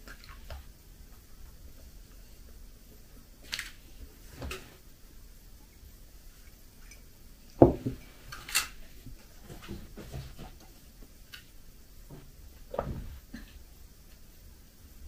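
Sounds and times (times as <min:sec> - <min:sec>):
mug set down on table: 0:07.6 - 0:08.0.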